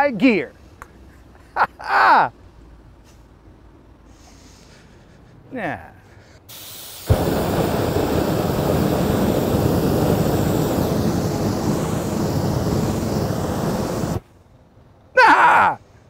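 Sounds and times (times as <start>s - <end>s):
aerosol spray hiss: 6.5s - 14.2s
loud rush of flame: 6.5s - 14.3s.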